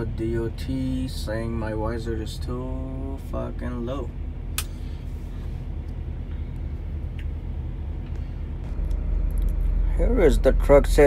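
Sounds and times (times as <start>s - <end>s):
diesel engine idling: 0.0s - 11.0s
sharp click: 4.5s - 4.8s.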